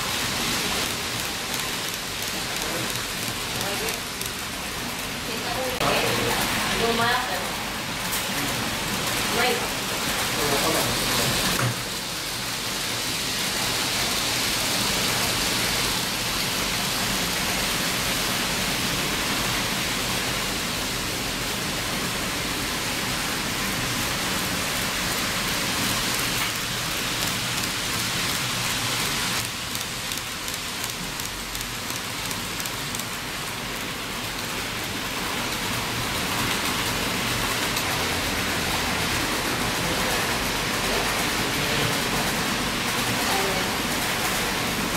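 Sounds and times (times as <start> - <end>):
model trains hissing on track: 8.9 - 31.3.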